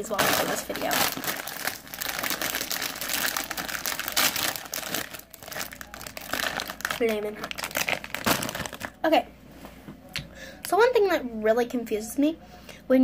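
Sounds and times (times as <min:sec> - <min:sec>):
plastic snack bag crinkling: 0:00.0 - 0:09.0.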